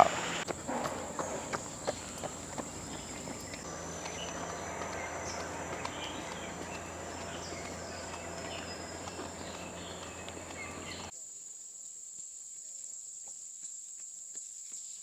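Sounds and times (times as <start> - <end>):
faint low hum: 0.0 - 11.1
insects droning: 0.0 - 14.4.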